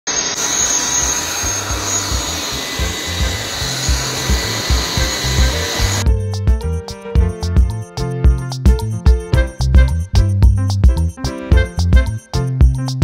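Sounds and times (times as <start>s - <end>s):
stick vacuum cleaner whirring: 0.1s - 6.0s
background music with bass line: 1.6s - 13.0s.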